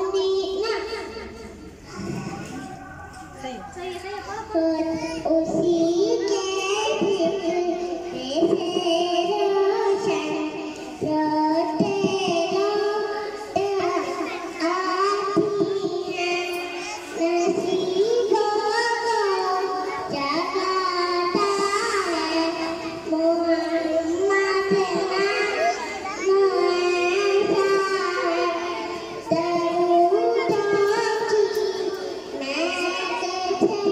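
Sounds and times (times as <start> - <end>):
child singing devotional chant: 0.0 - 33.9.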